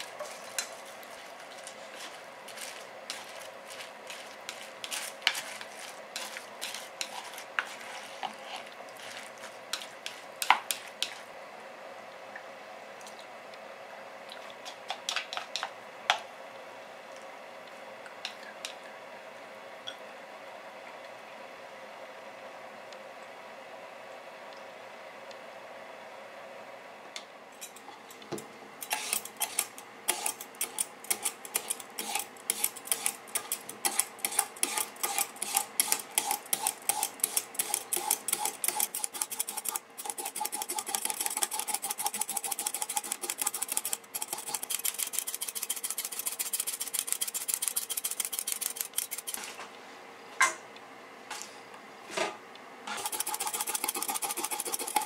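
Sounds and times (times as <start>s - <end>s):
peeler scraping root: 0.0s - 11.2s, 28.8s - 49.6s, 52.9s - 55.0s.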